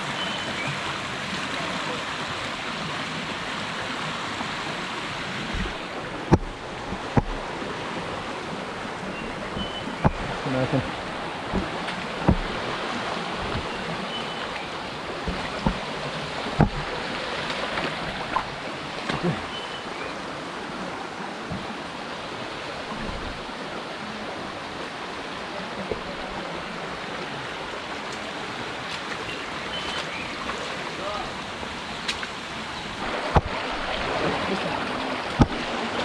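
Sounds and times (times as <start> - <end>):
water rushing over rocks: 0.0 - 36.0.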